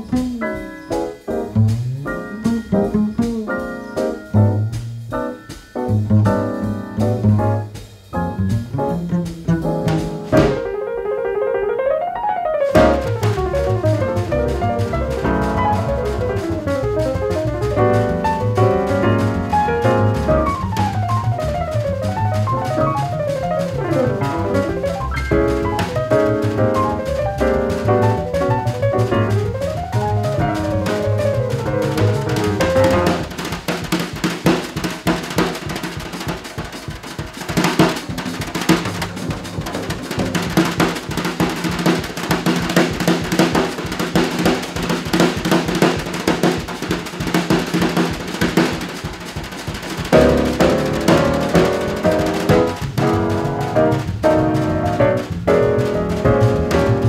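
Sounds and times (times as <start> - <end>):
walking bass: 0.0 - 10.8, 12.8 - 34.7, 36.7 - 57.0
drum solo: 0.0 - 11.6, 12.5 - 57.0
piano runs: 50.2 - 57.0.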